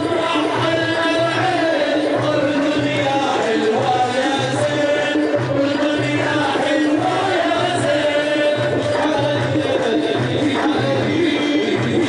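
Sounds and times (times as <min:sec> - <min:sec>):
steady drum beat: 0:00.0 - 0:12.0.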